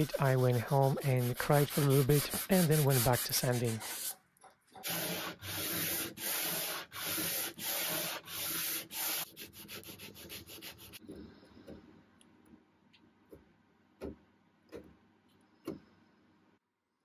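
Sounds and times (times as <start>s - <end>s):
hand sanding wood: 0.0s - 4.2s, 4.8s - 11.0s.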